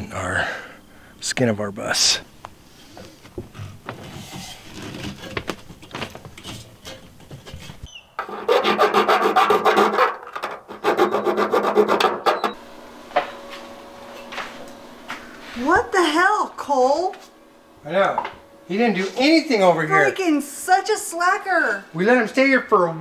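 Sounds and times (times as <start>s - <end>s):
saw cutting sheet metal: 8.2s - 12.5s.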